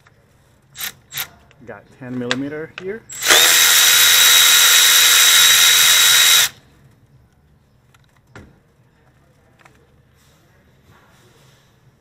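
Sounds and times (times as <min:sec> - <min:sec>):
electric ratchet whining: 0:03.1 - 0:06.6.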